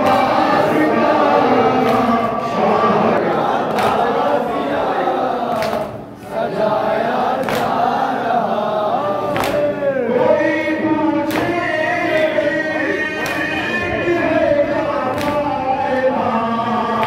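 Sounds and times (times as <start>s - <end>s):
men and boys chanting: 0.0s - 17.0s
hands slapping chests: 5.5s - 5.9s, 7.4s - 7.8s, 9.3s - 9.7s, 11.2s - 11.6s, 13.2s - 13.5s, 15.1s - 15.4s
man singing a lament into a microphone: 8.0s - 17.0s.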